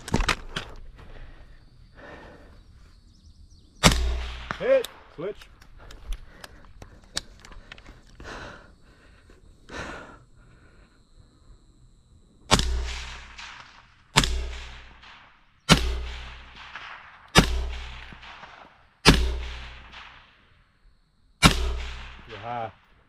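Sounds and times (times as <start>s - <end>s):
rifle shots with echo: 3.8s - 5.3s, 12.5s - 20.5s, 21.4s - 23.0s.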